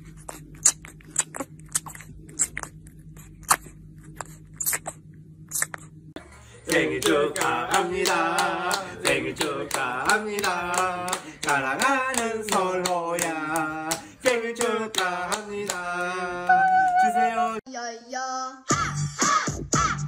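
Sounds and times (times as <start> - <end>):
people singing together: 6.6 - 17.6
hands clapping in rhythm: 6.7 - 17.4.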